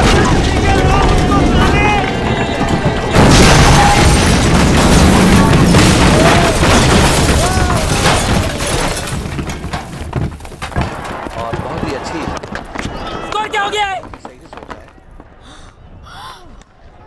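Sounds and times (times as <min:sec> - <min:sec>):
loud boom: 0:00.0 - 0:09.2
masonry crashing and crumbling: 0:00.0 - 0:14.8.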